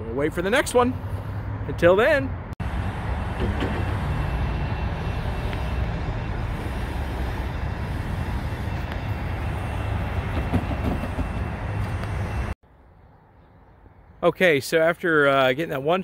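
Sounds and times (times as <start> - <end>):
low vehicle rumble: 2.4 - 13.6.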